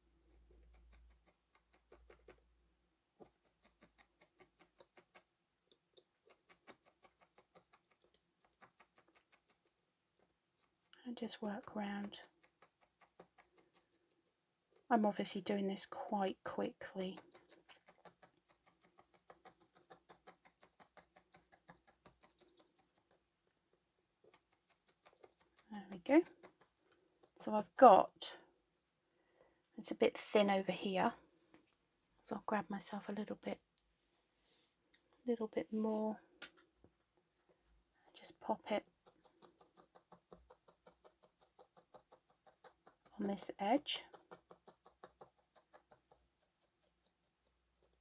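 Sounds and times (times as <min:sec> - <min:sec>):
felting needle ticking: 0:00.0 - 0:02.5, 0:03.2 - 0:09.8, 0:10.5 - 0:28.5, 0:38.2 - 0:48.0
felting needle tapping into foam: 0:38.8 - 0:46.9.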